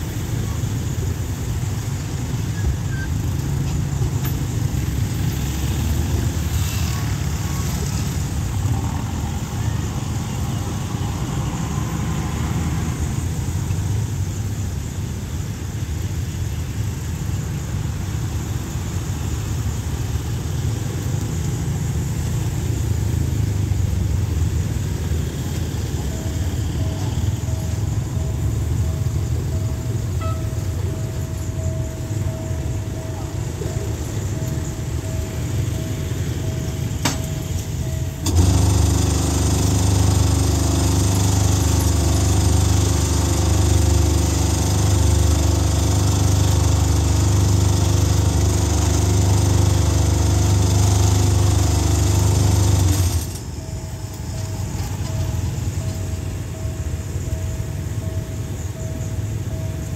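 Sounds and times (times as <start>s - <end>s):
faint steady tone: 0.0s - 38.3s
cars driving over level crossing: 0.0s - 59.9s.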